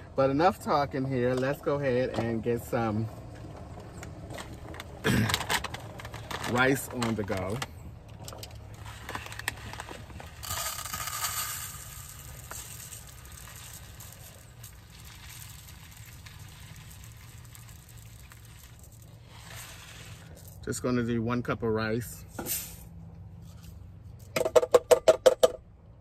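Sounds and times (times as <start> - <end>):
plastic bag of rice crinkling: 8.3 - 20.6.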